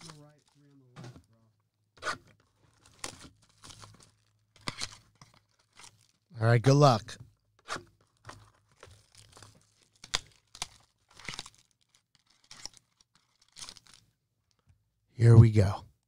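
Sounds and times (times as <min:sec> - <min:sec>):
plastic wrap tearing and crinkling: 0:00.0 - 0:01.0, 0:02.1 - 0:06.3, 0:08.0 - 0:14.0
plastic wrap snapping: 0:08.1 - 0:14.0.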